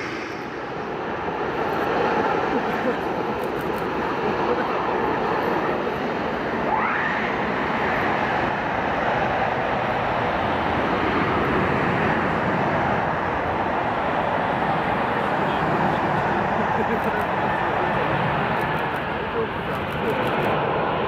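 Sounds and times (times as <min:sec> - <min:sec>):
rising engine whine: 0:00.0 - 0:16.6
jet engines rushing: 0:00.0 - 0:21.0.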